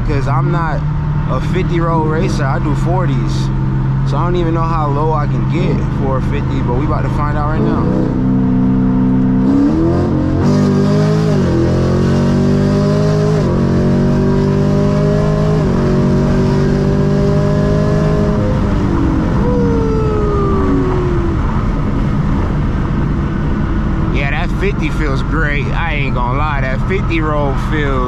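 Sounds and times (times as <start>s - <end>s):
car engine accelerating through gears: 0.0s - 28.0s
falling whine: 17.2s - 28.0s.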